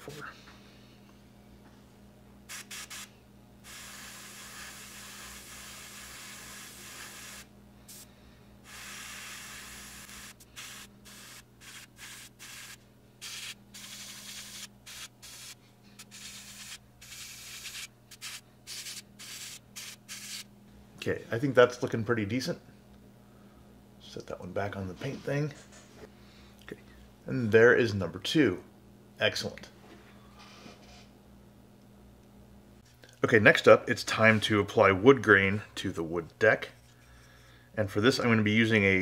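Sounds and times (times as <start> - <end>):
airbrush spraying hiss: 2.5 - 20.5.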